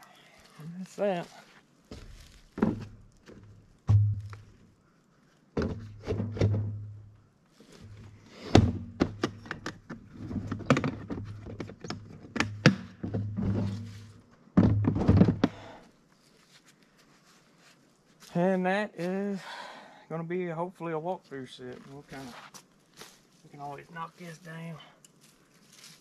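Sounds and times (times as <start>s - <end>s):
dull thuds and knocks: 1.9s - 4.5s, 5.6s - 7.0s, 8.5s - 13.9s, 14.6s - 15.7s.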